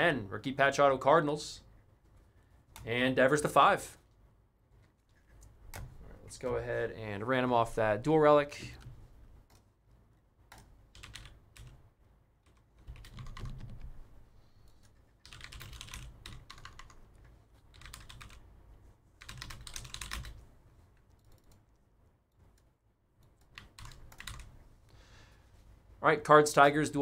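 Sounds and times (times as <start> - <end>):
computer keyboard typing: 5.2 - 5.9, 10.5 - 11.8, 12.4 - 14.0, 14.8 - 18.5, 19.2 - 20.4, 21.0 - 21.6, 22.4 - 24.6.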